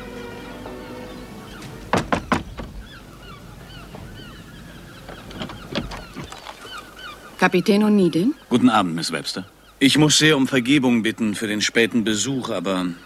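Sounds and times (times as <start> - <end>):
birds calling: 0.0 - 13.0
knocks on wooden door: 1.6 - 2.9.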